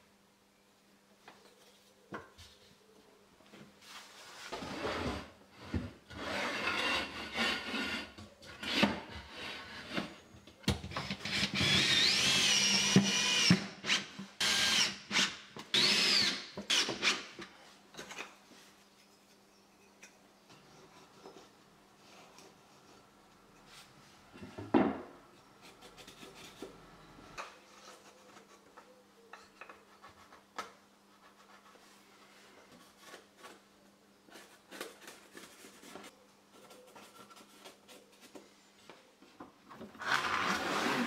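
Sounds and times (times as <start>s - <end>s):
cordless drill drilling wood: 11.2s - 17.2s, 40.0s - 41.0s.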